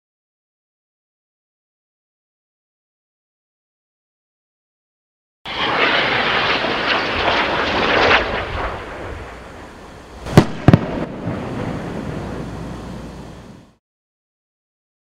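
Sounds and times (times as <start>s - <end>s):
sharp bangs: 5.5s - 13.7s
low rumble: 5.5s - 13.8s
rocket rushing noise: 5.5s - 13.8s.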